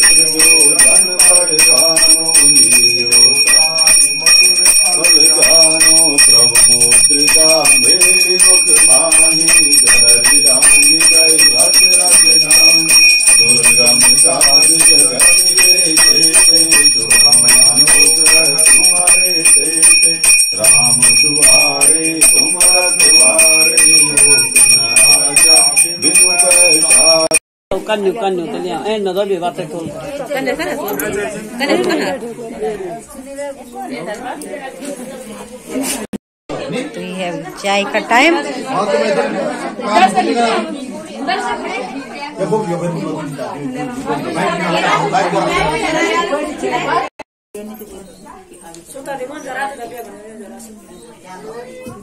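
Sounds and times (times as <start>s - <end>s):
man chanting: 0.0s - 27.3s
brass hand bell ringing: 0.0s - 27.4s.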